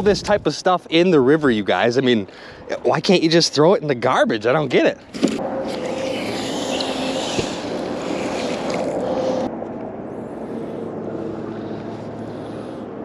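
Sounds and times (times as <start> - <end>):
outdoor rushing noise: 5.2 - 13.0.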